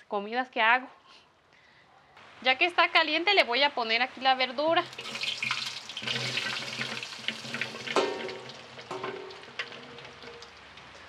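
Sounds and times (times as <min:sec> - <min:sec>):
vegetables sizzling in hot oil: 0:03.8 - 0:10.6.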